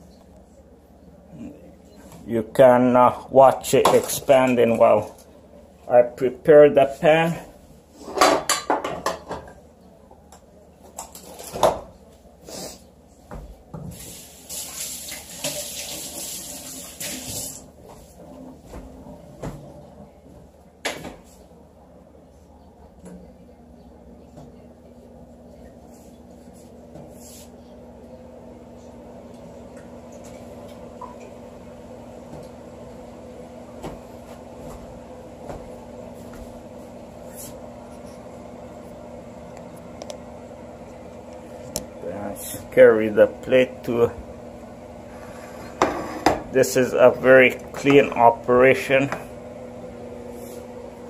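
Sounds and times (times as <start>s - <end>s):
electrical hum: 0.0s - 51.0s
water running into a steel sink: 14.0s - 17.7s.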